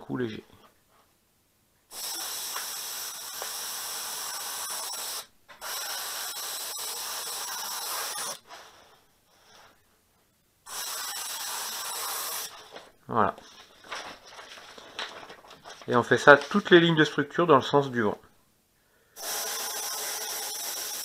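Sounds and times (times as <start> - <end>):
airbrush spraying hiss: 1.9 - 8.4, 10.7 - 12.6, 19.2 - 21.0.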